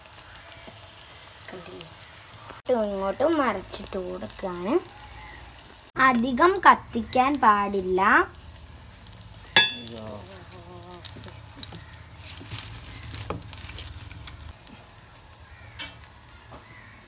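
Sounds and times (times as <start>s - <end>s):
oil sizzling in deep-frying: 0.0s - 17.0s
wood fire crackling: 0.0s - 17.0s
sharp ringing clink: 9.6s - 9.9s.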